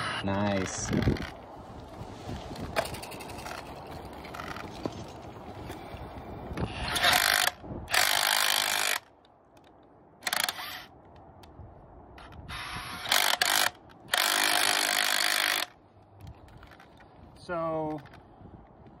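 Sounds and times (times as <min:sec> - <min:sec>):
cordless drill spinning: 0:06.6 - 0:09.1, 0:10.2 - 0:10.9, 0:12.2 - 0:15.7.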